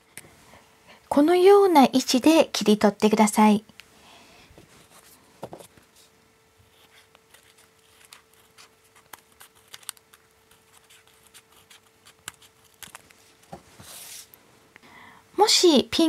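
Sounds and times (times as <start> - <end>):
paper handling: 4.8 - 14.3
scissors snipping paper: 6.8 - 13.2.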